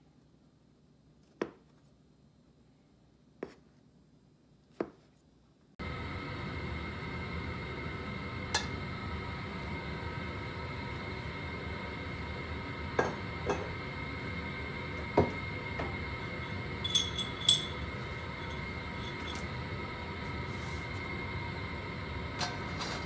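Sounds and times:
kitchen hum with faint whine: 0:00.0 - 0:23.0
kitchenware clinking: 0:16.8 - 0:19.5.

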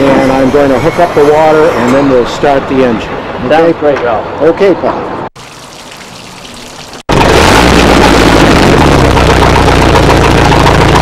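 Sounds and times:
water splashing: 0:05.4 - 0:07.7
boat engine running: 0:07.1 - 0:11.0.

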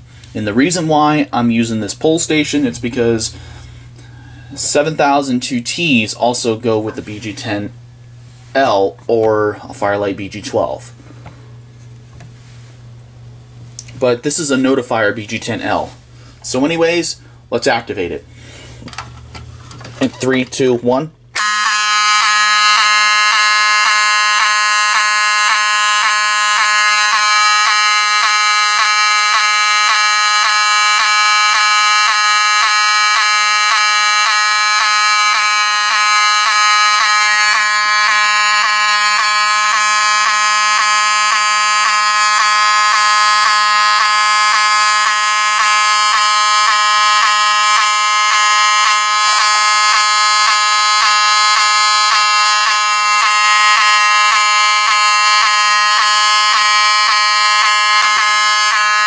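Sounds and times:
fire alarm horn buzzing: 0:21.2 - 0:59.0.

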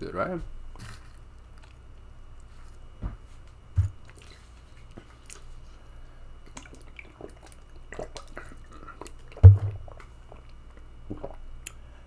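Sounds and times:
dull thumps: 0:03.0 - 0:04.1, 0:09.4 - 0:09.8
mouth chewing and swallowing: 0:03.8 - 0:05.8, 0:06.4 - 0:11.9.

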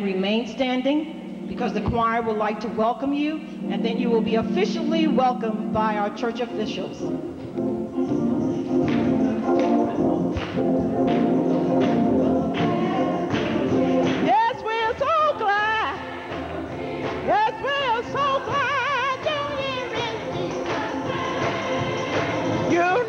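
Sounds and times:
gospel choir singing: 0:03.7 - 0:23.0
lead voice singing with vibrato: 0:12.1 - 0:23.0.

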